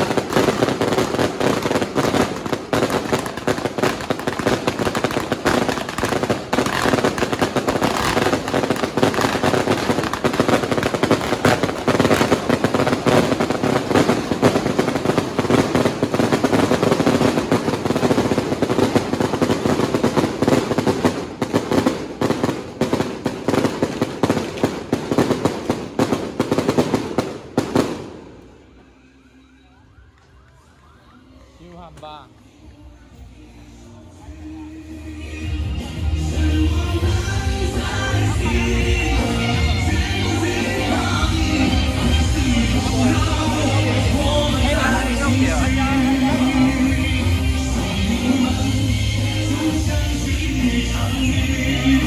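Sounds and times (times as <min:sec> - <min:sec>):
firecrackers and fireworks crackling: 0:00.0 - 0:52.0.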